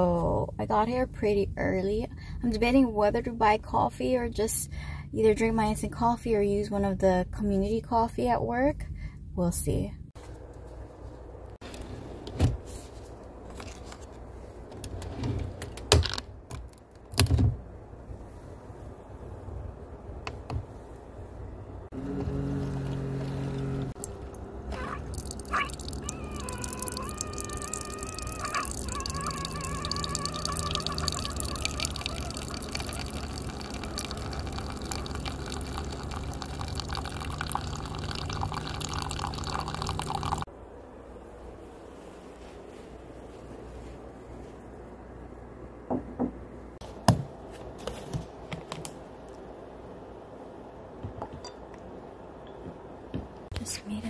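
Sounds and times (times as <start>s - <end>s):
coffee machine humming: 21.9s - 40.5s
coffee trickling into mug: 25.0s - 40.5s.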